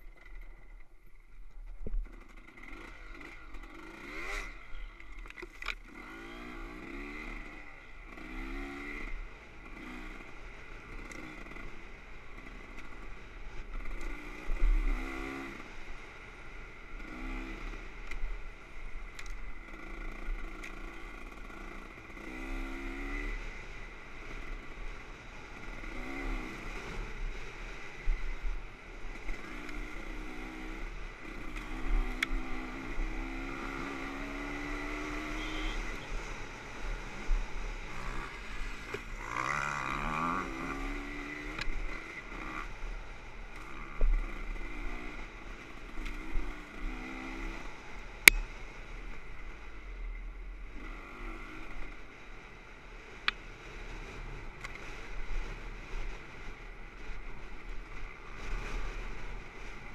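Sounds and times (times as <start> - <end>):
dirt bike engine revving: 2.0 - 5.0, 5.6 - 16.1, 17.0 - 18.0, 19.6 - 24.9, 25.5 - 27.9, 29.1 - 48.8.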